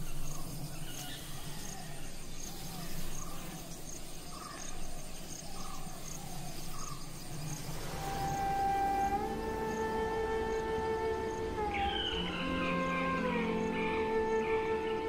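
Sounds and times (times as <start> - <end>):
insects chirping: 0.0 - 15.0
sustained musical tone: 7.5 - 15.0.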